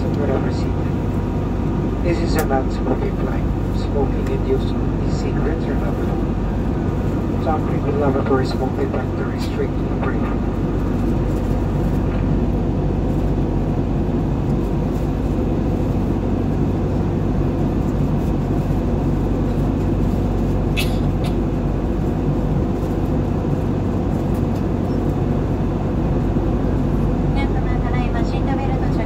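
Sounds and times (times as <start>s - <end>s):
airplane cabin drone: 0.0s - 29.0s.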